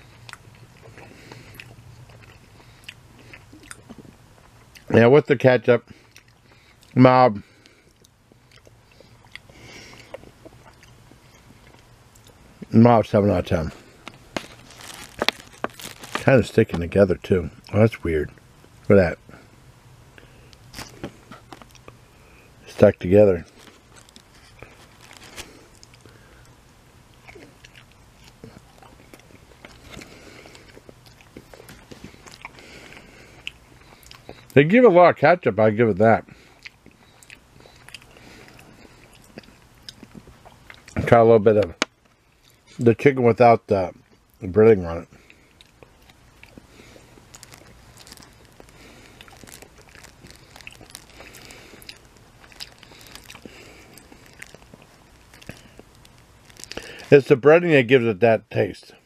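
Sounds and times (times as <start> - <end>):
person biting and chewing: 0.1 - 5.0, 13.9 - 16.4, 20.6 - 22.0, 23.5 - 26.2, 27.1 - 34.5, 36.5 - 41.0, 45.2 - 57.1.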